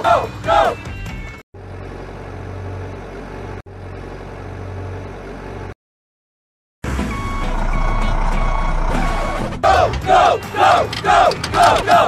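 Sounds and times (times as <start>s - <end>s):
truck engine running: 1.6s - 5.8s, 6.8s - 12.0s
reversing alarm beeping: 6.9s - 9.6s.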